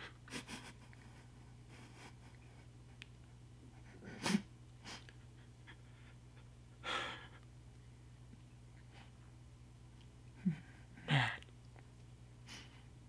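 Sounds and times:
low room hum: 0.0 - 13.0
sniffling breaths: 3.8 - 7.5, 12.4 - 13.0
man crying: 10.4 - 11.4.

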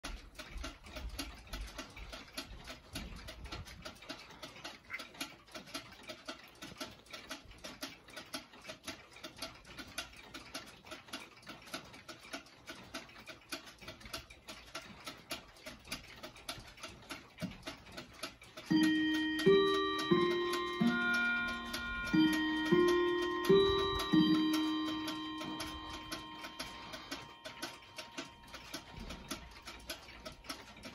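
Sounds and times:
pendulum clocks ticking: 0.0 - 30.9
clock chime struck note: 18.7 - 30.2.

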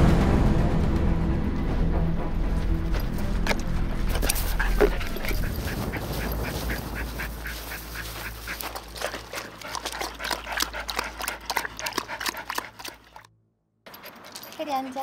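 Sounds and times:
dog lapping water: 3.5 - 13.3.

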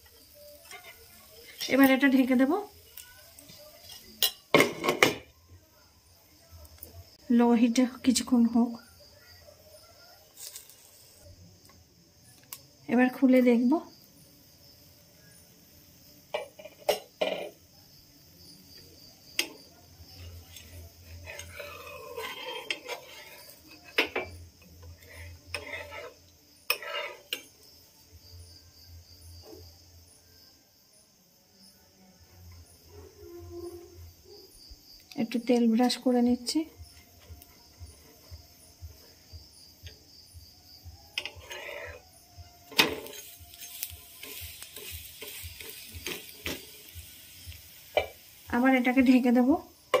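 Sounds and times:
light sizzle: 0.0 - 5.6, 6.2 - 30.2, 32.4 - 50.0
metal utensils scraping frying pan: 0.1 - 2.5, 3.2 - 5.2, 10.3 - 11.2, 20.2 - 27.6, 41.1 - 49.2.

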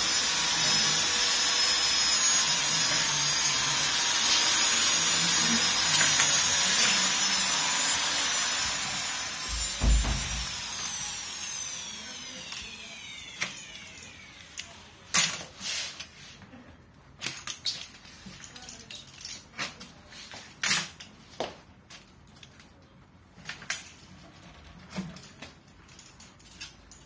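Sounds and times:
motor whine: 0.0 - 14.7.

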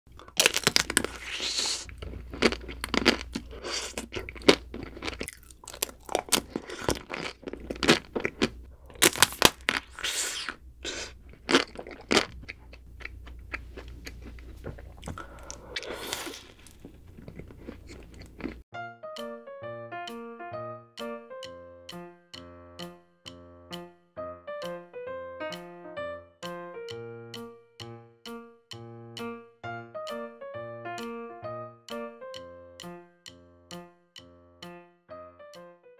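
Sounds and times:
chewing and mouth sounds: 0.1 - 18.6
chocolate shell crunching: 0.1 - 18.6.

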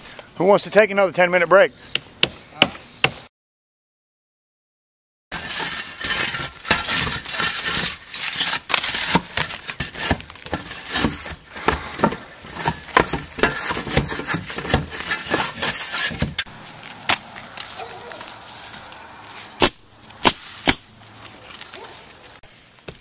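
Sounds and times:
shovel scraping under roof shingles: 5.3 - 18.8.

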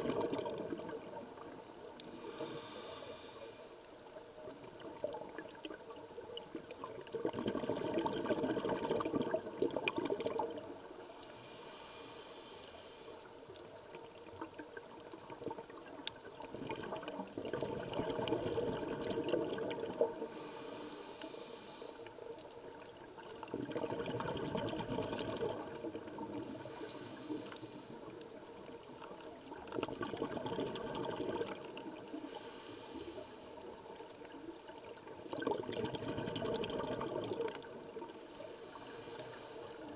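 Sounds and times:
bubbling underwater exhalations: 0.0 - 1.4, 6.6 - 10.7, 15.3 - 20.4, 23.4 - 26.4, 29.6 - 32.0, 35.2 - 38.0
regulator inhale hiss: 2.0 - 4.2, 11.0 - 13.8, 20.0 - 22.6, 25.8 - 29.6, 31.9 - 34.1, 38.0 - 39.9.

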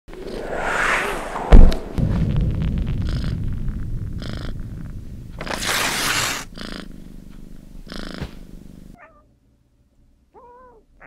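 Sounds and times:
cat purring: 3.0 - 3.4, 4.2 - 4.6, 5.4 - 9.0
cat meowing: 9.0 - 9.3, 10.3 - 10.9.

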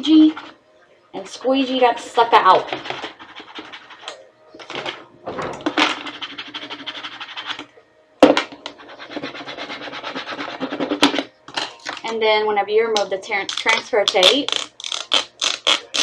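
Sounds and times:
plastic squeegee scraping tape: 13.5 - 16.0.

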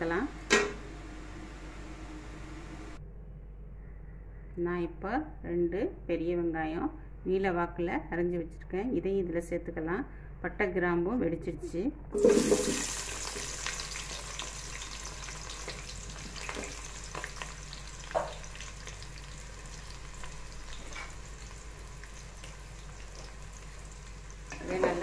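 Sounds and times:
onions sizzling in hot oil: 12.2 - 25.0.

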